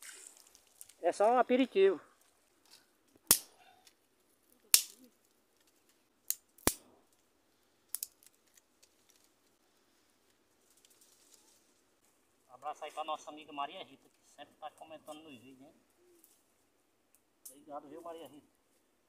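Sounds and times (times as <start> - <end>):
dry twigs snapping: 0.0 - 1.0, 2.2 - 9.6, 10.2 - 11.6.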